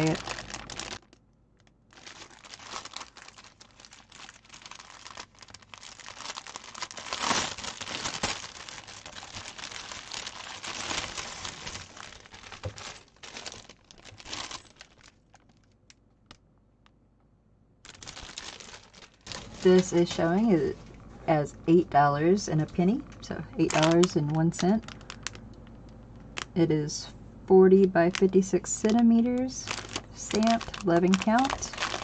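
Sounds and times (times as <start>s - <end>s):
plastic packaging crinkling: 0.0s - 16.4s, 17.8s - 21.2s, 22.7s - 26.6s, 27.8s - 32.0s.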